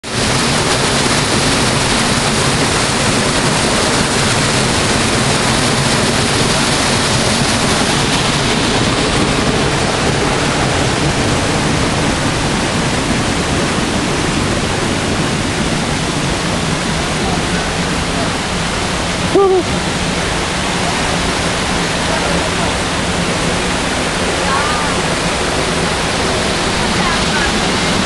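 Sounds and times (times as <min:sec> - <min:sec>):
waterfall rushing into pool: 0:00.0 - 0:28.0.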